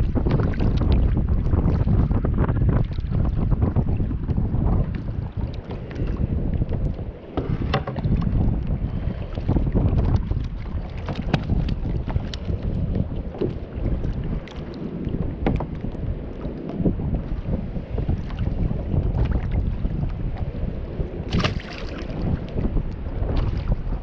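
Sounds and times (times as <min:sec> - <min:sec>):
waves slapping against hull: 0:00.0 - 0:24.0
wind buffeting microphone: 0:00.0 - 0:24.0
fish splashing into water: 0:21.3 - 0:22.2.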